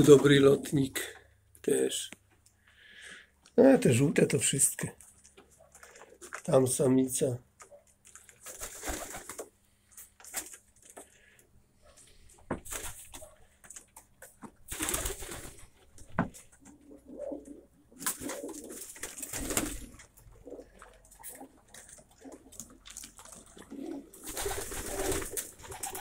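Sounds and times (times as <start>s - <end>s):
pigeons rustling and scuffling: 5.0s - 6.6s, 7.6s - 26.0s
pigeons cooing softly: 15.0s - 26.0s.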